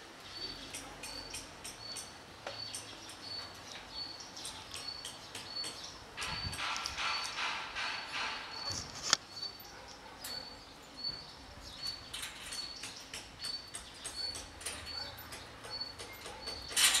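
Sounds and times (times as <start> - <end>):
bird chirping: 0.2 - 17.0.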